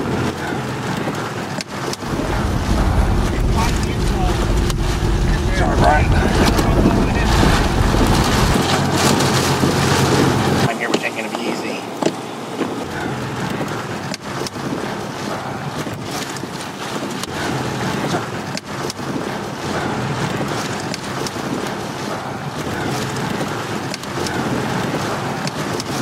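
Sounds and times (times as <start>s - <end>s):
strong wind rushing over microphone: 0.0s - 10.8s.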